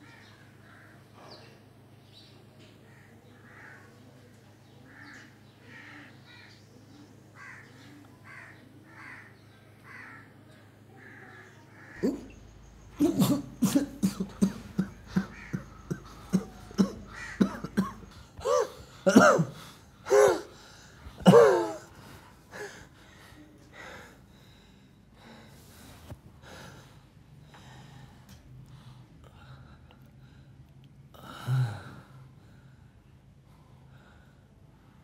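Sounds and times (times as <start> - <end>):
man coughing harshly: 13.0 - 20.6, 21.2 - 22.0
faint breathing: 14.6 - 17.4, 18.1 - 35.0.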